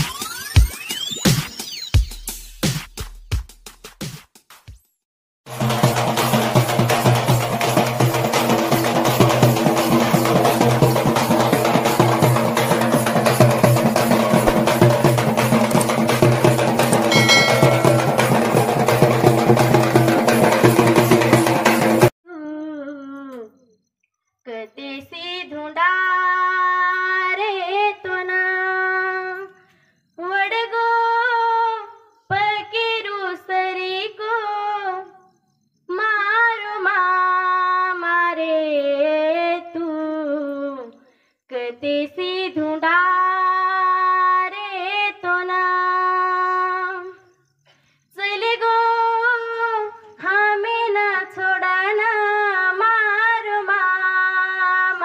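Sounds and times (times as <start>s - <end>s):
woman singing unaccompanied: 24.4s - 29.6s, 30.2s - 35.2s, 35.9s - 47.3s, 48.1s - 55.0s.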